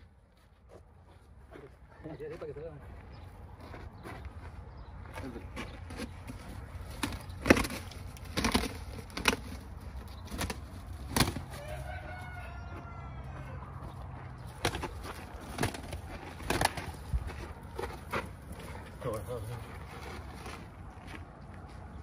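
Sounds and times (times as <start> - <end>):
rooster crowing: 11.4 - 14.2.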